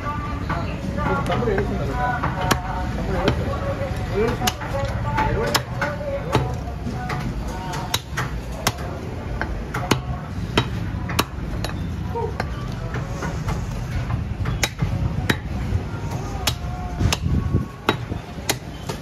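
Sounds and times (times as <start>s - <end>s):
cleaver chopping bone on wood: 4.3s - 11.8s, 14.4s - 15.5s, 16.4s - 19.0s.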